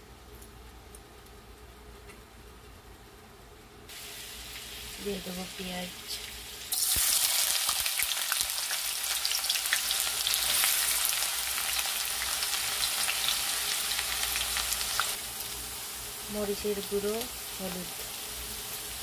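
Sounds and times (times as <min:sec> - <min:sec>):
onions sizzling in hot oil: 0:03.9 - 0:19.0.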